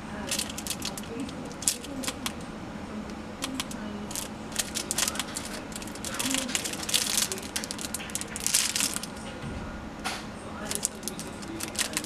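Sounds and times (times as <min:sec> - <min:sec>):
plastic bag crinkling: 0:00.1 - 0:02.4, 0:03.4 - 0:09.4, 0:10.6 - 0:12.0.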